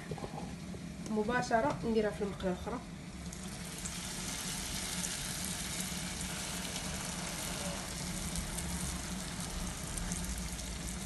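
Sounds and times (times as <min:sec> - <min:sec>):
dough frying in hot oil: 0:02.9 - 0:11.0.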